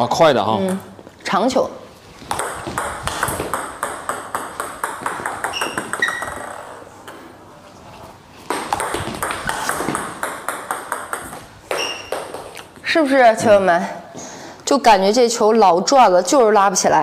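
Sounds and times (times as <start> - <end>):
ball bouncing on table: 2.2 - 7.2, 8.4 - 12.8
table tennis ball clicking off bats: 2.3 - 6.5, 8.5 - 12.7
shoe squeaks: 5.3 - 6.8, 11.7 - 12.8.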